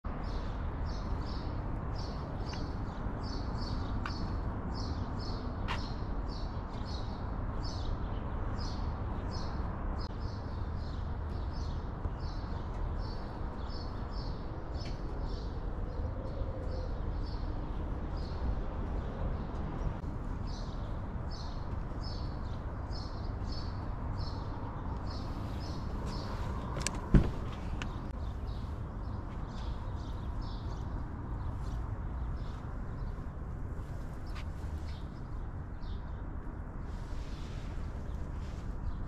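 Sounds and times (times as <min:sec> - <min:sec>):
small birds chirping: 0:00.1 - 0:39.0.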